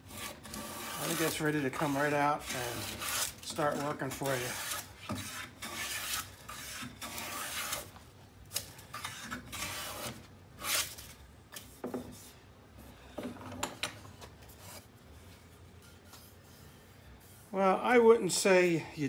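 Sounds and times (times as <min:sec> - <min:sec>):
hand plane scraping wood: 0:00.0 - 0:07.9, 0:08.9 - 0:10.8.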